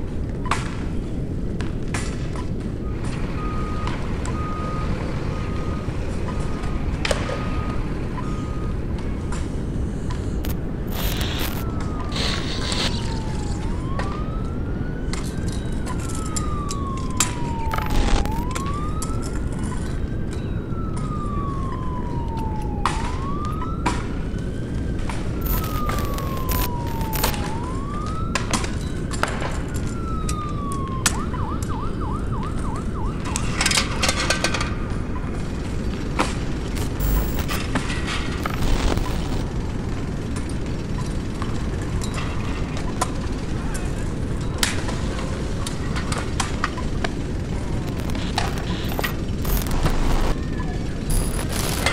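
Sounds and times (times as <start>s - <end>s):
emergency siren wailing and yelping: 2.7s - 51.9s
low rumble: 36.4s - 39.7s, 46.8s - 51.9s.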